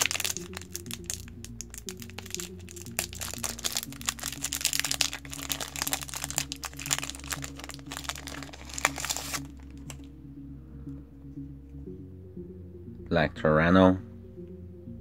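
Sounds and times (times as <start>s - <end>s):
foil wrapper crinkling and tearing: 0.0s - 10.0s
soft background music: 0.0s - 15.0s.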